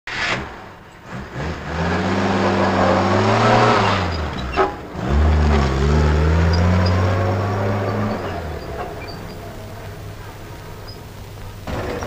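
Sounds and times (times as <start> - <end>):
short sharp noise: 0.1 - 1.6
truck engine revving: 0.2 - 12.0.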